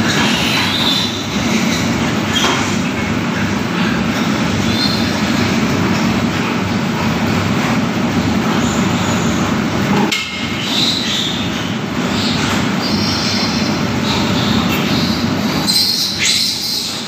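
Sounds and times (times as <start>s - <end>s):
piglets squealing: 10.7s - 17.0s.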